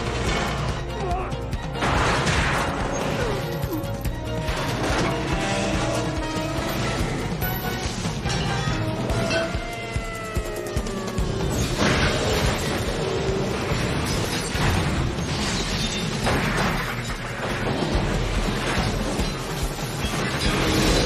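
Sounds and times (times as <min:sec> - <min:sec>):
film music score: 0:00.0 - 0:21.0
cars crashing with metal clatter: 0:04.2 - 0:09.5, 0:11.5 - 0:21.0.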